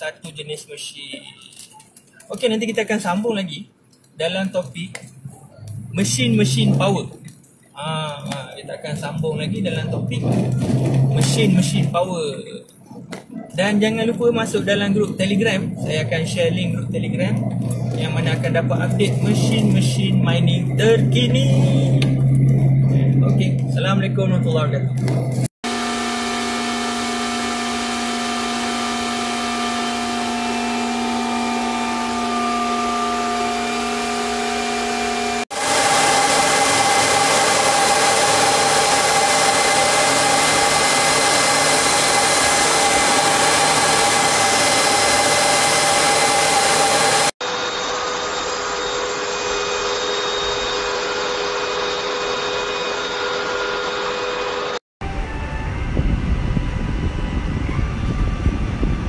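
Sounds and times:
cooling fans whirring: 0:03.4 - 0:59.0
high fan whine: 0:13.1 - 0:59.0.

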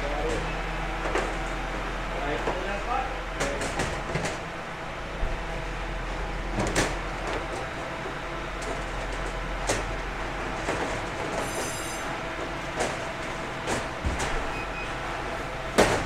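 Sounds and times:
baking trays knocking and scraping: 0:02.3 - 0:04.4, 0:12.4 - 0:14.5, 0:15.7 - 0:16.0.

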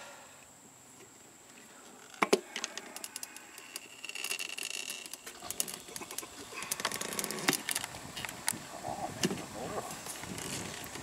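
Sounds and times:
tire tool clicks and scrapes: 0:02.2 - 0:08.6.

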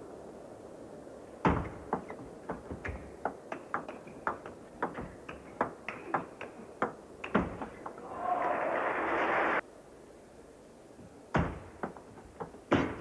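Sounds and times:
table tennis ball clicking: 0:01.5 - 0:08.0.

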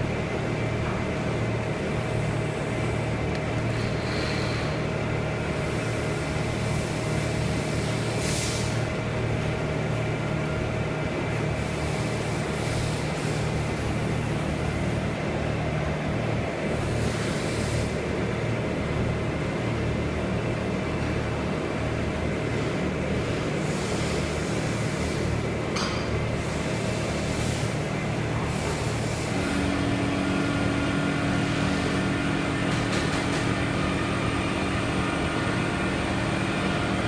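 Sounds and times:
low mechanical hum: 0:00.0 - 0:37.0
short hissing bursts: 0:08.2 - 0:08.8.

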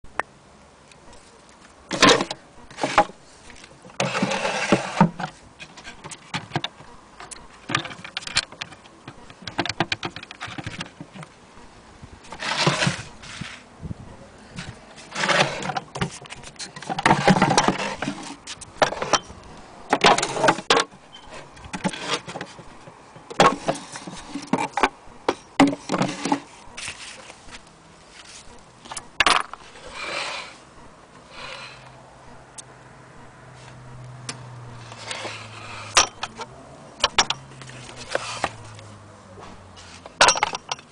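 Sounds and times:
wooden case knocks and rattles: 0:09.4 - 0:11.2.

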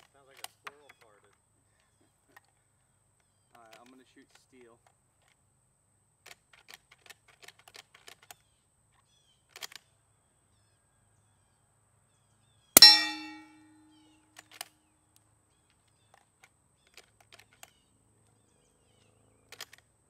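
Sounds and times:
steel target ringing: 0:12.8 - 0:13.8.

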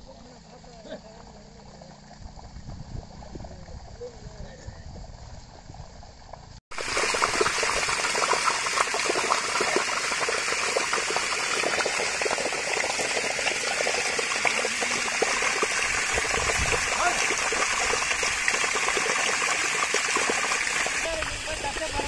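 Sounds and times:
water gushing and splashing: 0:06.7 - 0:22.0.

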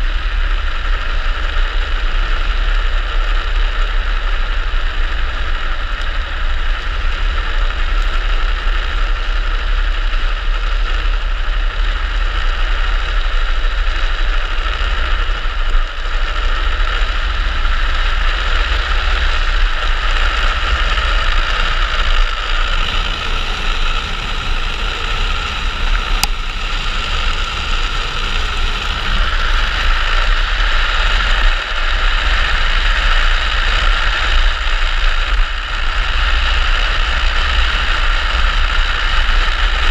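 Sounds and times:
wheels rolling on asphalt: 0:00.0 - 0:39.9
wind buffeting microphone: 0:15.2 - 0:34.0.

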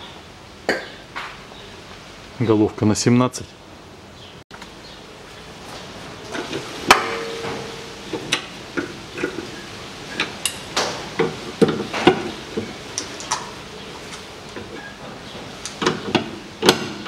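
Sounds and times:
sharp ringing metal clank: 0:06.9 - 0:08.0.

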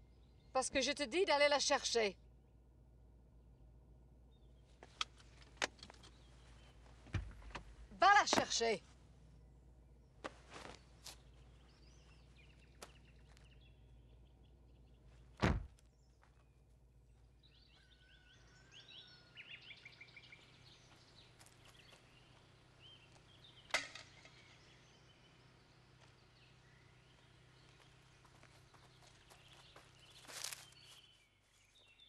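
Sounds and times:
low steady hum: 0:00.0 - 0:31.7
birds chirping: 0:00.0 - 0:32.0
car door slamming: 0:15.4 - 0:15.7
sharp knock: 0:15.4 - 0:15.7.

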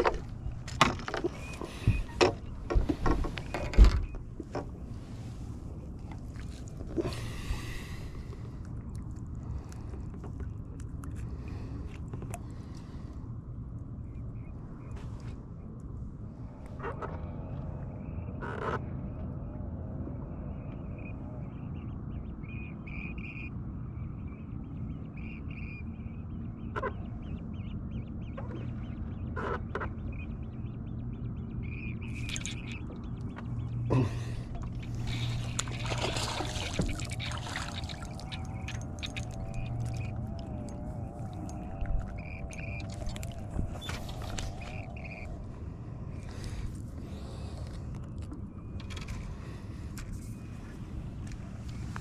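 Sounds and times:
low hum: 0:00.0 - 0:52.0
distant waterfowl calling: 0:20.9 - 0:23.5, 0:24.9 - 0:45.4.

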